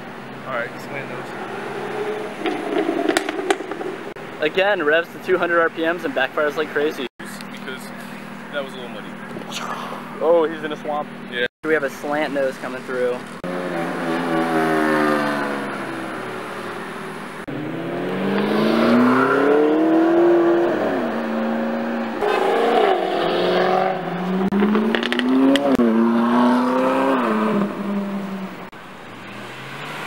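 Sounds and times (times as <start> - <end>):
sports cars accelerating hard: 0.7 - 4.2, 13.4 - 30.0
exhaust pops: 1.9 - 4.2, 22.2 - 26.0.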